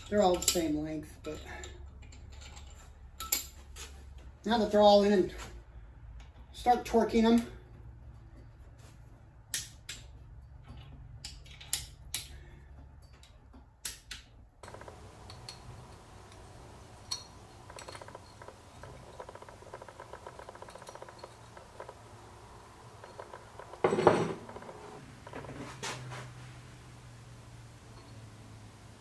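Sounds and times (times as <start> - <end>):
metal clinks and rattling: 0.0 - 3.8, 14.6 - 25.6, 27.7 - 28.7
torque wrench clicking: 13.8 - 22.2.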